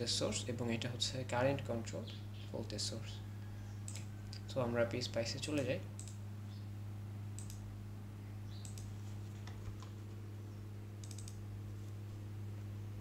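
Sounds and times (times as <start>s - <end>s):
steady low hum: 0.0s - 13.0s
computer mouse clicks: 3.9s - 4.1s, 6.0s - 6.2s, 7.4s - 7.6s, 8.6s - 9.9s, 11.0s - 11.4s.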